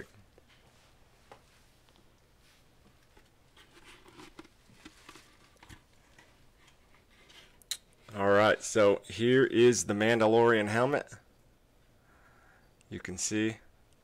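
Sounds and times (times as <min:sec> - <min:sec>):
soft handling rustles: 0:00.0 - 0:08.2.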